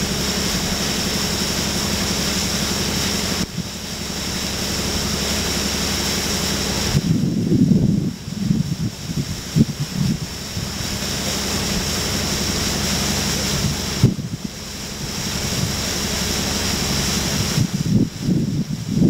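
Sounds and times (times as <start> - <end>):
low engine hum: 0.0 - 19.0
water rushing: 0.0 - 19.0
wind buffeting microphone: 6.9 - 11.1, 13.4 - 15.9, 17.2 - 19.0.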